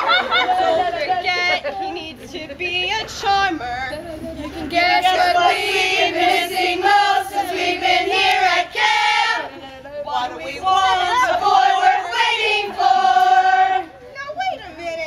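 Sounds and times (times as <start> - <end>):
girls and women singing in unison: 4.6 - 14.1.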